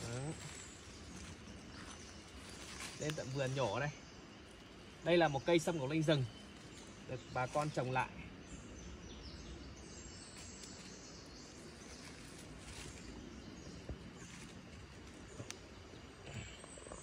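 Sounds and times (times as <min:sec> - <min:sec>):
hands rustling leaf litter: 0:00.0 - 0:03.9, 0:10.3 - 0:13.5
birds: 0:00.0 - 0:17.0
insects: 0:00.0 - 0:17.0.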